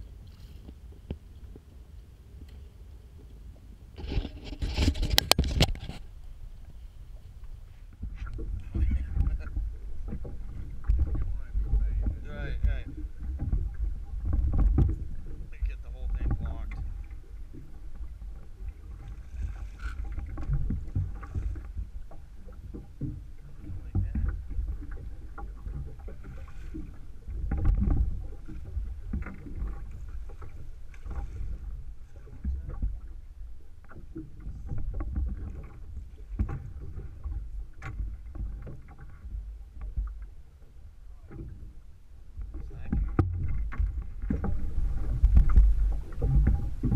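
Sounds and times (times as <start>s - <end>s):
water slapping against boat: 3.2s - 46.9s
low rumble: 6.1s - 30.4s.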